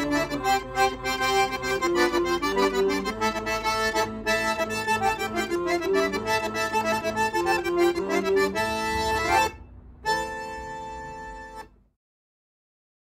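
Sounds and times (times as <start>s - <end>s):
piano accordion playing chords: 0.0s - 11.9s.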